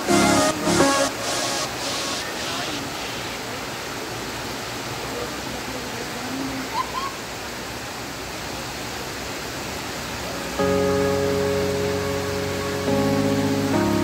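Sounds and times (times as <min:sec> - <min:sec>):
music: 0:00.0 - 0:02.7, 0:10.6 - 0:14.0
heavy rain hissing: 0:00.0 - 0:14.0.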